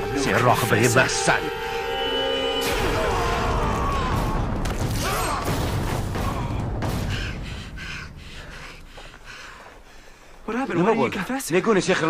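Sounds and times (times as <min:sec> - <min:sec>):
fight blows and thuds: 0:04.0 - 0:09.2.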